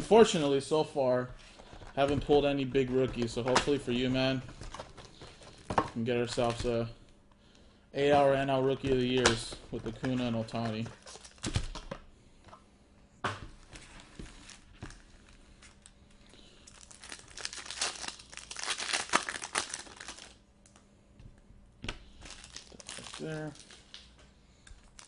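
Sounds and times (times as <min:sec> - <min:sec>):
plastic foil wrapper crinkling: 0:10.4 - 0:11.8, 0:16.6 - 0:20.8, 0:22.2 - 0:24.1, 0:24.8 - 0:25.0
wrapper torn open by hand: 0:16.7 - 0:20.4, 0:22.2 - 0:24.0.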